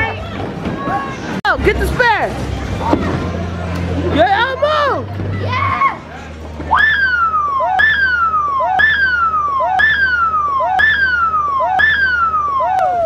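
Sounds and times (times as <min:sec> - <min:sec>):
siren-like whistling tone: 0:06.7 - 0:13.0.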